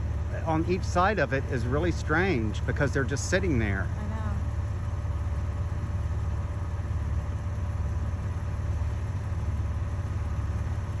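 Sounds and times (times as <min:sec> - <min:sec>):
steady low rumble: 0:00.0 - 0:07.6.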